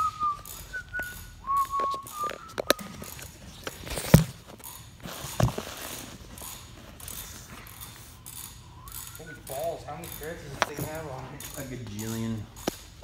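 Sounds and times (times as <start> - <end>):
metal clanks and knocks: 9.9 - 13.0.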